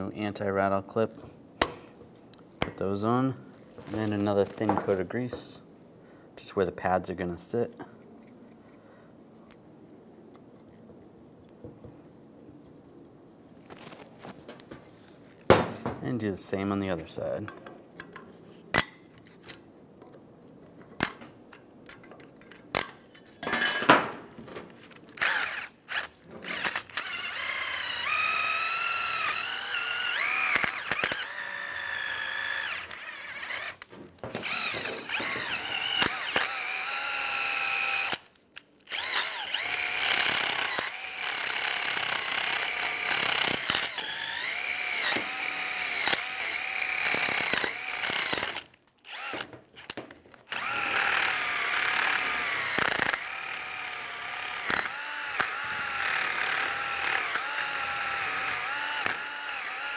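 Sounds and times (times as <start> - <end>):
power drill with wire brush whining: 25.2 - 38.3, 38.9 - 59.9.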